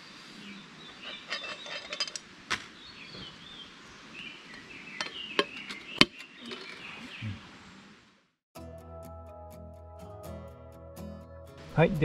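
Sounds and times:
birds chirping faintly: 0.0s - 8.0s.

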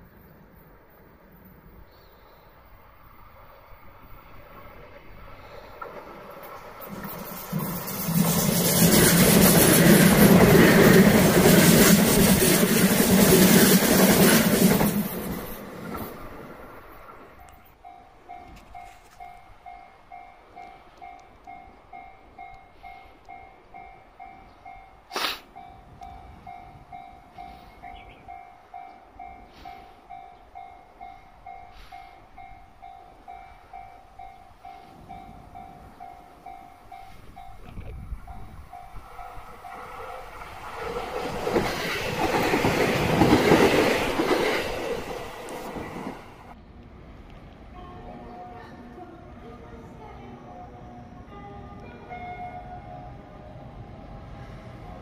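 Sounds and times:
electric train passing: 0.0s - 55.0s
level crossing warning bell: 17.4s - 40.4s.

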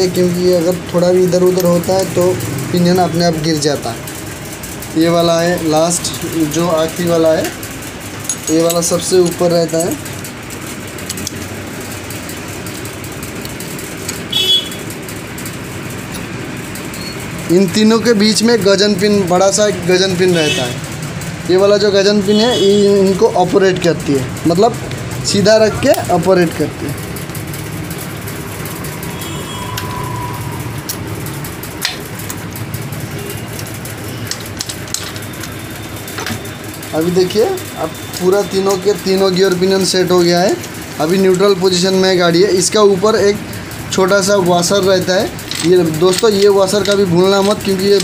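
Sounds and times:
metal gearbox parts clicking: 0.0s - 48.0s
clicks of steel parts handled: 8.2s - 9.0s, 45.4s - 48.0s
high ringing note: 29.1s - 30.8s.

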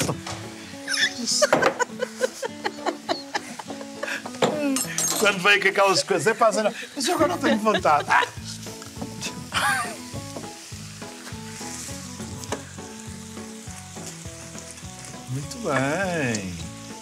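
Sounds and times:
food sizzling in pans: 0.0s - 17.0s.

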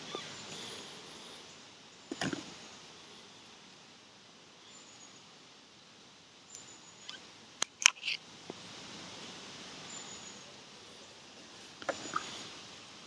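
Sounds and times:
faint high chirps: 0.0s - 2.1s
steady outdoor hiss: 0.0s - 13.0s.

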